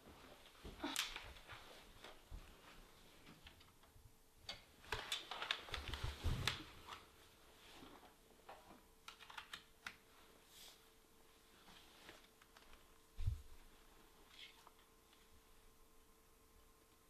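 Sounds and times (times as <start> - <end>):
faint steady hum: 0.0 - 17.0
laptop and cable clicks and taps: 8.5 - 10.0.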